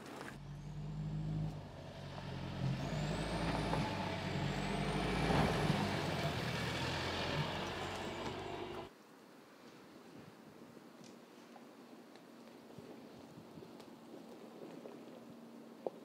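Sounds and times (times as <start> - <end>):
low engine hum: 0.0 - 8.9.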